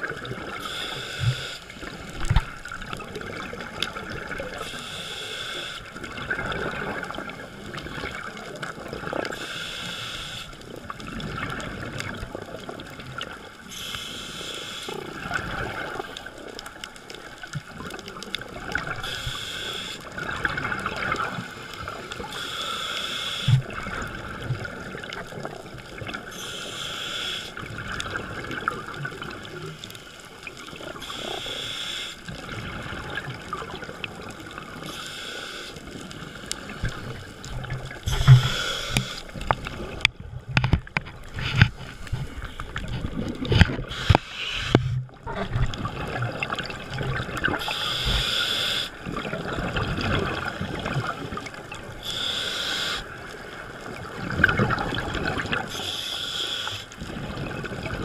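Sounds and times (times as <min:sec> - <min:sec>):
exhaled bubbles: 0:00.0 - 0:04.9, 0:05.9 - 0:09.4, 0:10.6 - 0:13.9, 0:14.9 - 0:22.4, 0:27.6 - 0:31.5, 0:32.2 - 0:35.0, 0:35.8 - 0:55.8, 0:57.0 - 0:58.0
regulator breathing hiss: 0:00.6 - 0:02.0, 0:04.6 - 0:05.9, 0:09.3 - 0:10.6, 0:13.7 - 0:15.0, 0:19.0 - 0:20.1, 0:22.2 - 0:23.6, 0:26.3 - 0:27.6, 0:31.0 - 0:32.2, 0:34.8 - 0:36.8, 0:38.0 - 0:39.5, 0:43.8 - 0:45.0, 0:47.6 - 0:49.0, 0:52.0 - 0:53.2, 0:55.7 - 0:56.9.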